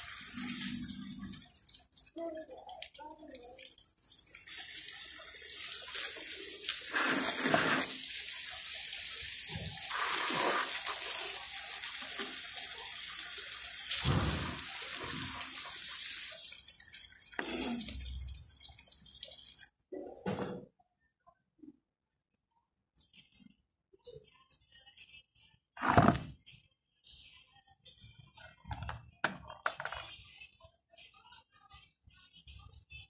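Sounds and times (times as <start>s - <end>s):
water running from tap: 0.0s - 19.7s
hiss of spray from hose joint: 9.9s - 11.2s.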